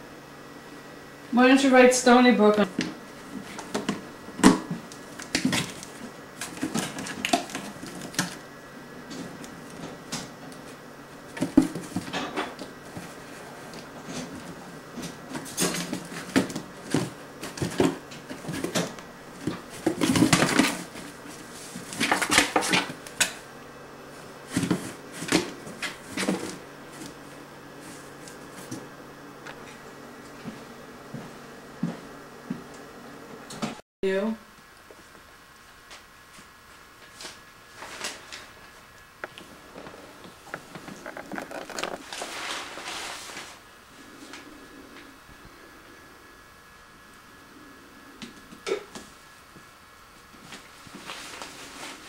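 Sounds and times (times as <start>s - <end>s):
kitten scratching cardboard: 40.8s - 43.5s.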